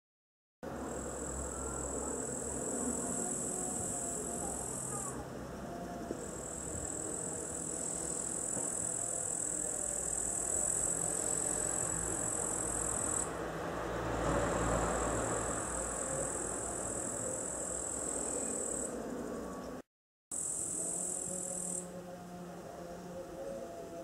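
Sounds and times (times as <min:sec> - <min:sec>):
high-pitched insect trill: 0:00.7 - 0:13.4, 0:14.1 - 0:23.9
distant traffic rumble: 0:09.6 - 0:19.8.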